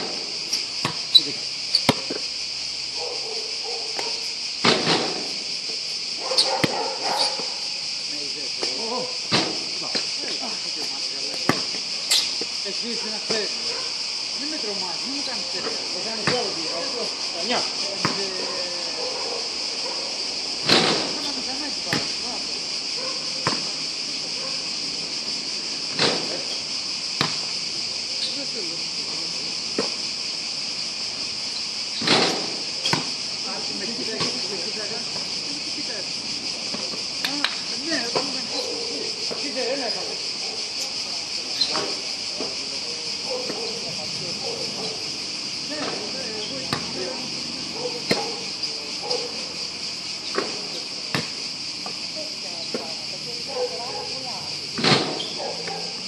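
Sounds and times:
insects droning: 0.0 - 56.0
basketball bouncing on hard court: 0.8 - 1.1
basketball bouncing on court: 0.8 - 1.2, 6.6 - 6.8, 16.2 - 16.5, 27.2 - 27.4.

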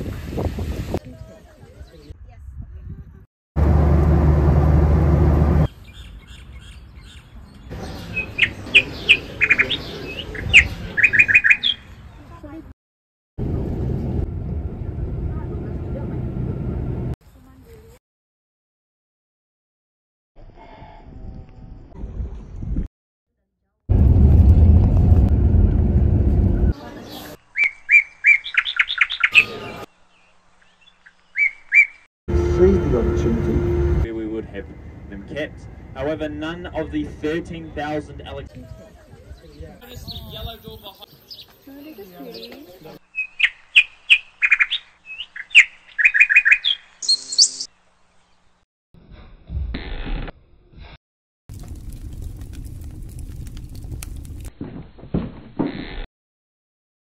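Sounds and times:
birds chirping: 5.7 - 12.6, 26.6 - 32.1, 38.6 - 48.6
airliner cabin drone: 13.4 - 17.1, 32.3 - 36.0
low hum: 13.4 - 17.1, 23.9 - 26.7, 32.3 - 36.0.

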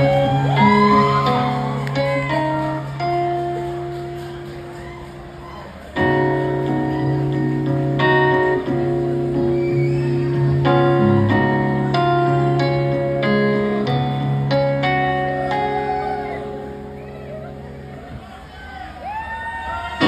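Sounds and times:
keyboard playing sustained chords: 6.0 - 18.2.

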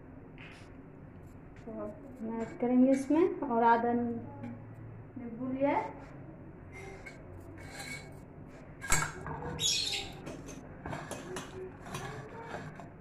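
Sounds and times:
steel bowl scraping: 6.7 - 13.0.

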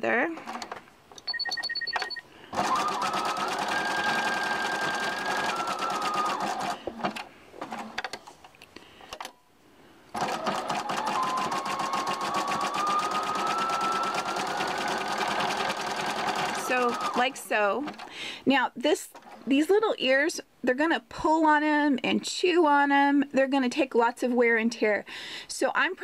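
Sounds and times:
sewing machine stitching: 2.5 - 8.2, 10.2 - 18.1.

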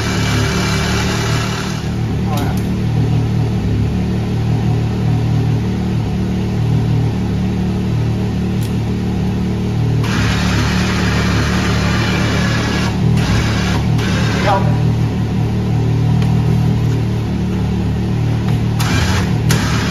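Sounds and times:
cordless drill whirring: 0.0 - 2.0, 10.0 - 14.4, 18.8 - 19.9
engine idling: 0.0 - 19.9.

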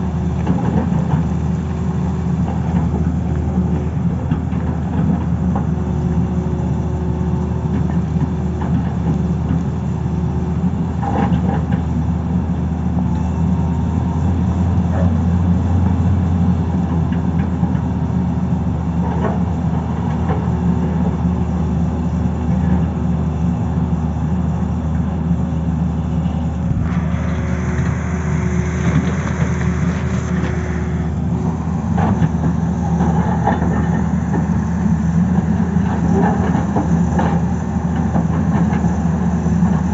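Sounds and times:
excavator diesel engine: 0.0 - 39.9
hydraulic whine: 18.9 - 39.9.

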